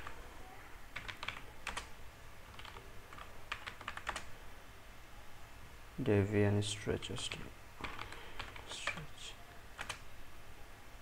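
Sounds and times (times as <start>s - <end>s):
computer keyboard typing: 0.9s - 1.9s, 2.5s - 4.3s, 7.8s - 9.0s, 9.8s - 10.0s.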